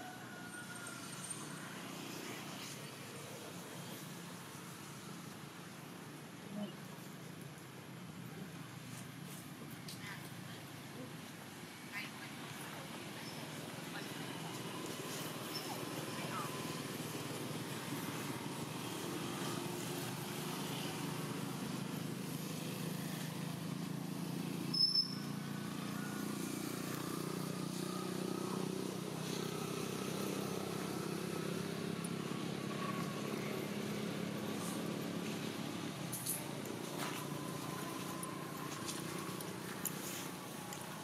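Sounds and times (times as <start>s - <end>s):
vehicle engine humming: 12.2s - 41.0s
short high squeak: 24.7s - 25.3s.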